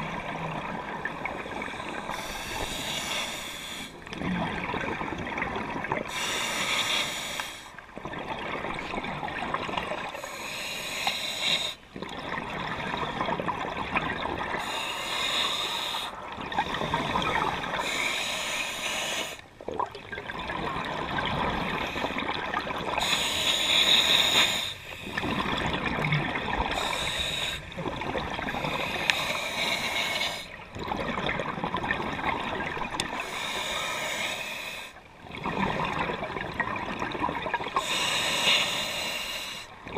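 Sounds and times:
regulator hissing inhale: 0:01.9 - 0:04.0, 0:06.1 - 0:07.8, 0:10.2 - 0:11.8, 0:14.6 - 0:16.2, 0:17.8 - 0:19.4, 0:23.0 - 0:25.2, 0:26.7 - 0:27.8, 0:28.4 - 0:30.6, 0:33.2 - 0:35.0, 0:37.8 - 0:39.8.

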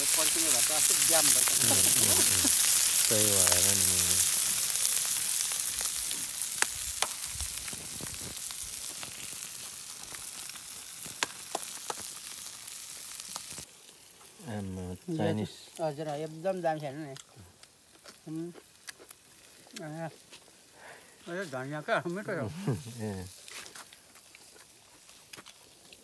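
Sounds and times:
sharp pops: 0:00.0 - 0:13.7
meat sizzling on stone: 0:00.0 - 0:26.0.

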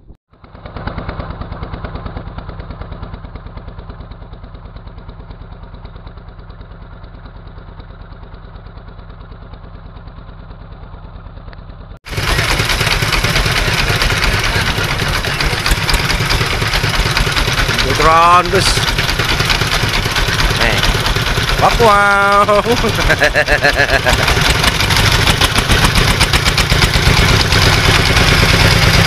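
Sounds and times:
boat engine throbbing: 0:12.1 - 0:29.0.

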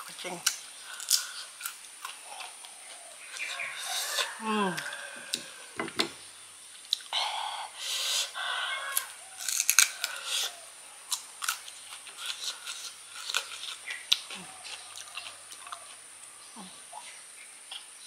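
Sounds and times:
crunchy fruit bite: 0:00.4 - 0:05.7, 0:08.8 - 0:18.0
wet chewing and mouth smacks: 0:06.8 - 0:07.1, 0:09.5 - 0:16.4.

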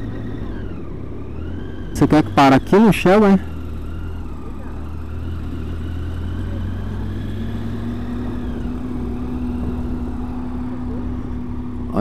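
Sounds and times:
motorcycle engine running: 0:00.0 - 0:12.0
wind and road noise: 0:00.0 - 0:12.0.

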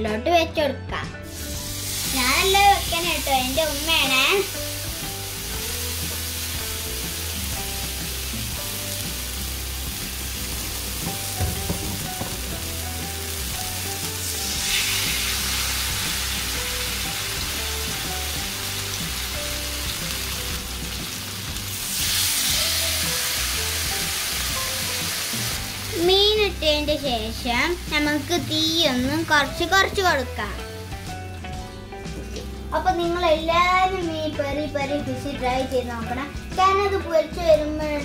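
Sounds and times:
fish sizzling in a frying pan: 0:01.3 - 0:29.6.

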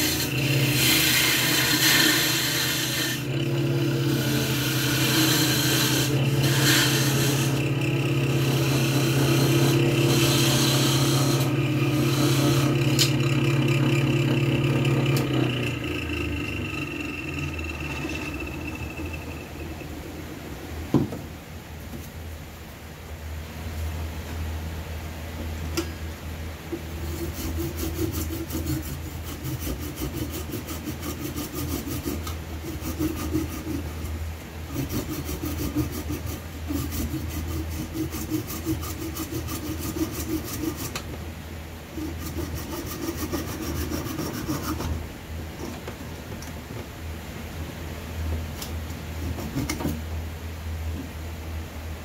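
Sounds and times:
handsaw cutting wood: 0:00.0 - 0:19.2, 0:27.0 - 0:34.1, 0:34.7 - 0:41.0, 0:42.0 - 0:45.0, 0:49.2 - 0:50.0
steady low hum: 0:00.0 - 0:52.0.

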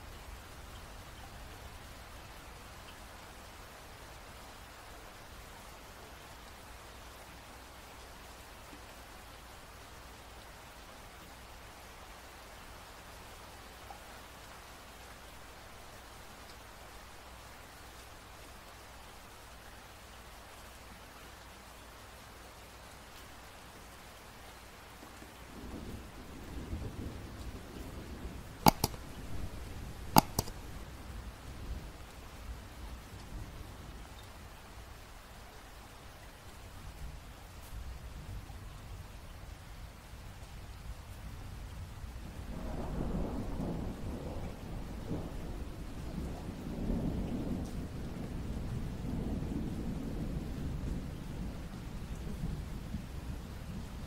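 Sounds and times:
sharp clicks: 0:28.7 - 0:29.2, 0:30.1 - 0:30.7.

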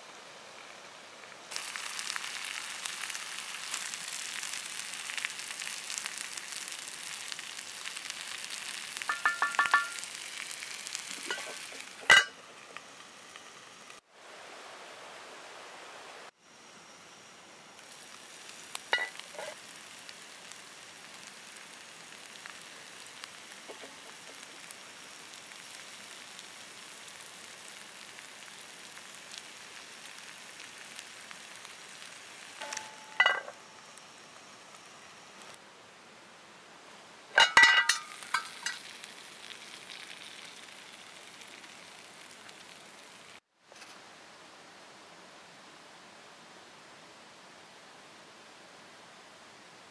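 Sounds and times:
food sizzling in a skillet: 0:00.0 - 0:14.0, 0:17.8 - 0:35.6, 0:37.4 - 0:43.5.

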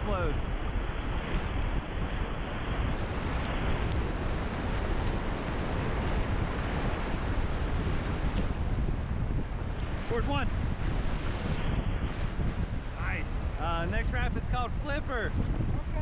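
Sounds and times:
wind rumbling on microphone: 0:00.0 - 0:16.0
whitewater rushing: 0:09.5 - 0:16.0.

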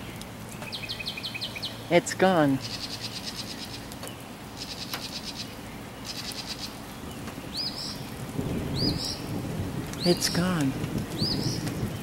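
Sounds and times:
songbirds trilling and chirping: 0:00.0 - 0:12.0
thunder rumble: 0:07.1 - 0:12.0.

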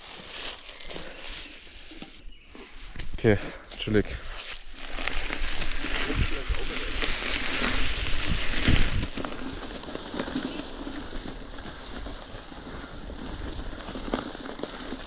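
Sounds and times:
bike tyres on dirt trail: 0:00.0 - 0:15.0
bike knocks and rattles: 0:07.4 - 0:15.0.

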